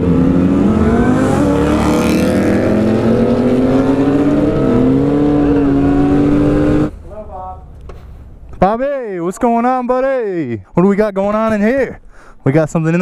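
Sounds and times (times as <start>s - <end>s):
motorcycle engine at road speed: 0.0s - 7.0s.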